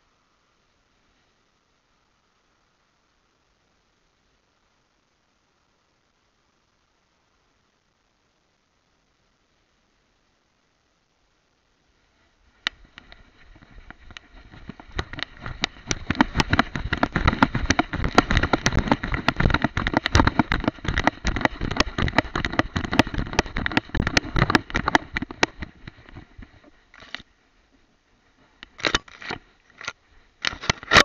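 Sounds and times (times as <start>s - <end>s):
camera rubbing against fur and grass: 12.1s - 27.3s.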